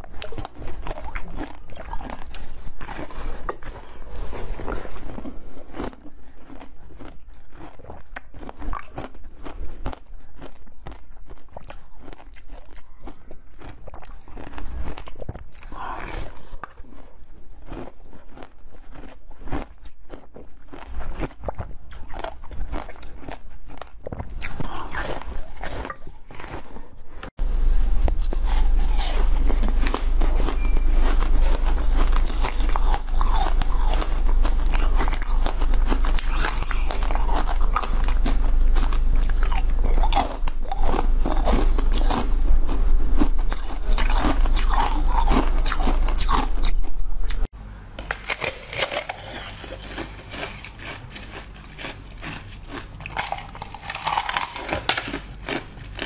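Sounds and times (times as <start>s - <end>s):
crunchy biting and chewing: 0.0s - 56.0s
low hum: 27.4s - 56.0s.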